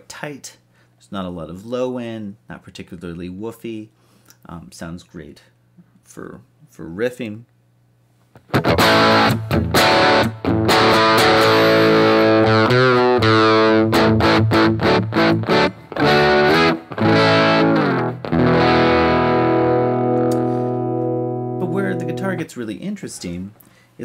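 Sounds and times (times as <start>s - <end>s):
distorted electric guitar chords: 8.4s - 22.4s.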